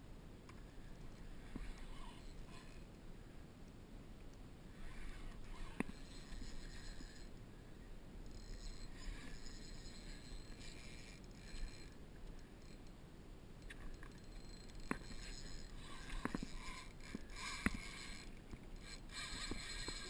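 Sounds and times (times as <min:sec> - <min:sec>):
wind: 0:00.0 - 0:20.0.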